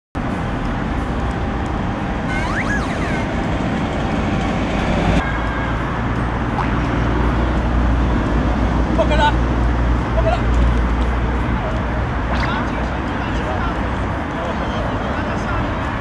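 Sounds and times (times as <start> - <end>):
city road traffic: 0.2 - 16.0
high rising and falling squeal: 2.2 - 5.0.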